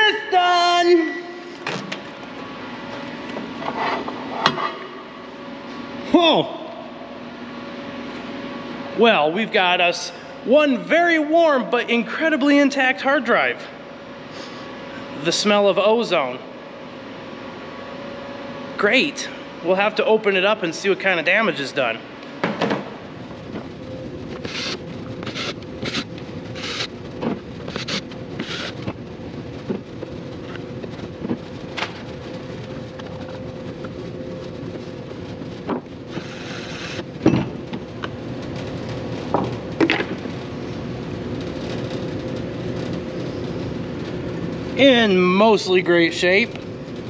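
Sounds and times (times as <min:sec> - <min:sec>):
steady hum: 0:00.0 - 0:47.0.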